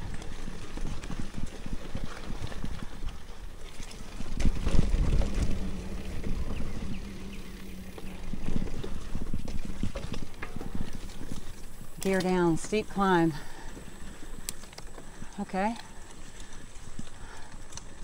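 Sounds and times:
wind rumbling on microphone: 0.0s - 18.0s
low hum: 2.7s - 18.0s
bike rattling and knocking: 4.0s - 11.8s.

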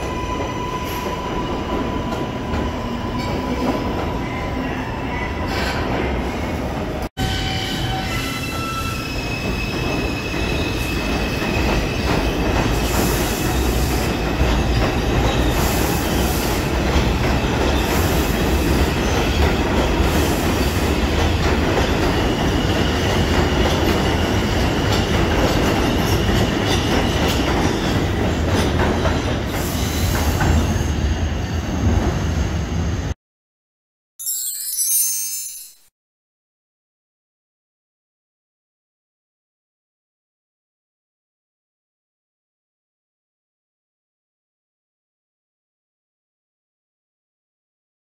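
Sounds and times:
train wheels rumbling on rail: 7.8s - 33.2s.

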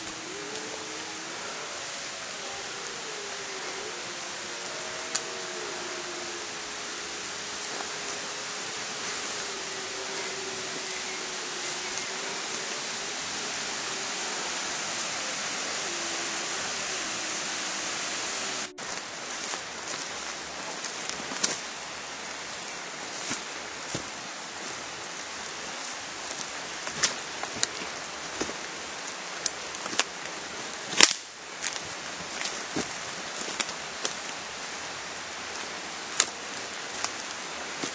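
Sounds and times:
steady hiss: 0.0s - 37.9s
footsteps on woodland floor: 3.8s - 15.7s, 18.8s - 24.8s, 31.0s - 37.9s.

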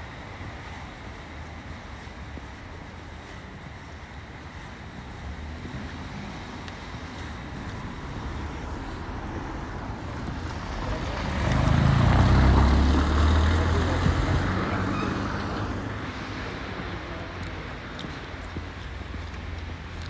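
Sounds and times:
vehicle passing on wet cobblestones: 0.0s - 20.0s.

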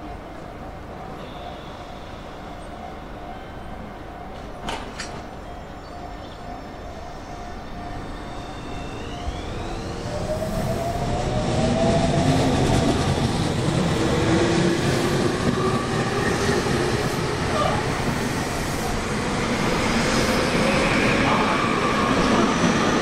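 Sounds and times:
train wheels rumbling on rails: 6.6s - 23.0s
train motor whine: 8.0s - 11.4s.

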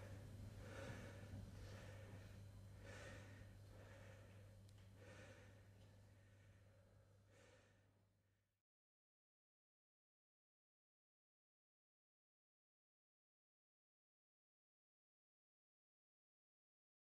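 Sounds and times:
faint breathing: 0.0s - 8.1s
low steady hum: 0.0s - 8.4s.

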